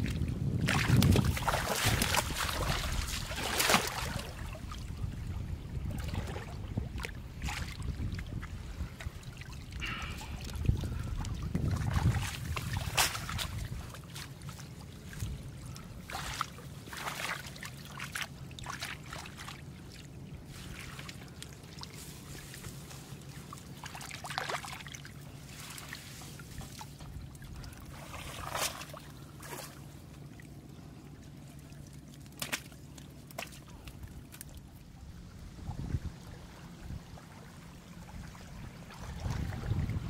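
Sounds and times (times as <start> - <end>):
splashes in water: 0.0 - 4.8, 9.4 - 30.5, 31.6 - 34.7
water trickling and sloshing: 0.0 - 40.0.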